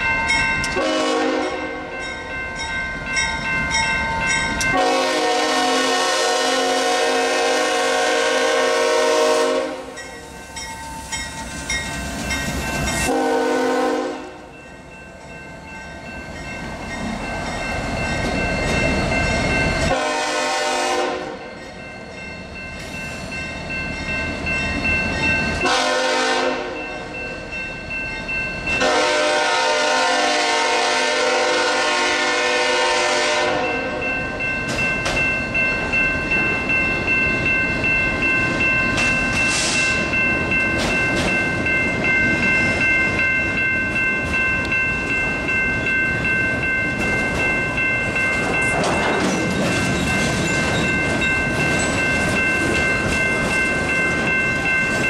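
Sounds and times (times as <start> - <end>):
freight train rumbling: 0.0 - 55.0
locomotive horn blasts: 0.8 - 1.9, 4.7 - 9.9, 13.0 - 14.4, 19.9 - 21.4, 25.6 - 26.8, 28.8 - 33.9
wheels clattering over rail joints: 48.2 - 54.4.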